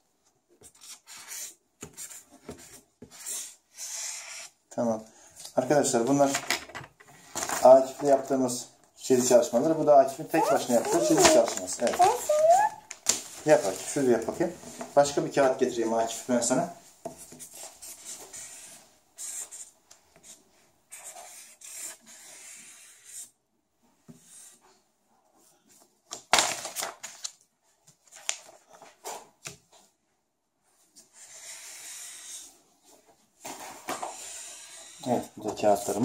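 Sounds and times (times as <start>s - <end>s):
marker scratching on paper: 0.7s - 4.6s, 17.4s - 23.3s, 31.2s - 32.5s, 34.1s - 35.1s.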